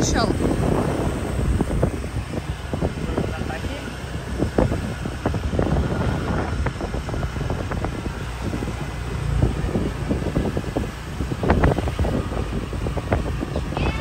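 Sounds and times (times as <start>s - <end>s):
motorbike engine running: 0.0s - 14.0s
wind buffeting microphone: 0.0s - 14.0s.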